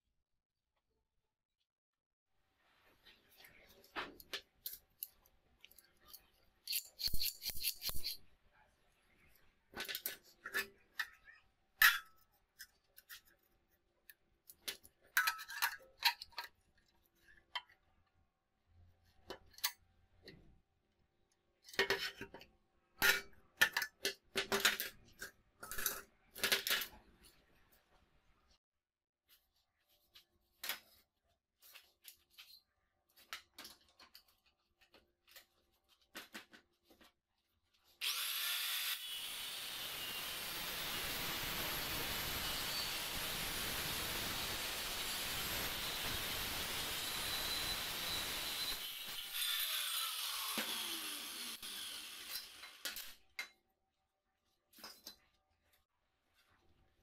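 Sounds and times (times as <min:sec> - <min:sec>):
angle grinder running: 0:38.0 - 0:53.1.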